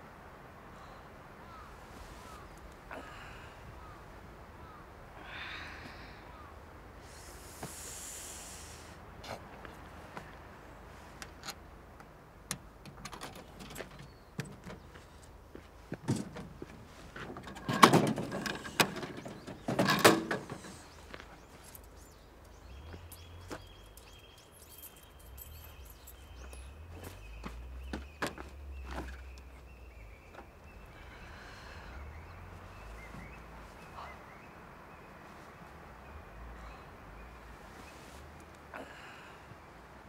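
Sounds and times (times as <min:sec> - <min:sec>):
vending machine clattering clunks: 0:17.4 - 0:20.8.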